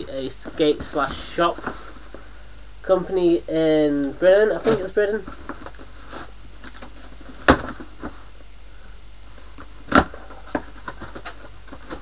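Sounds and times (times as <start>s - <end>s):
cardboard box crackling: 0.3s - 2.2s, 4.5s - 8.3s, 9.4s - 12.0s.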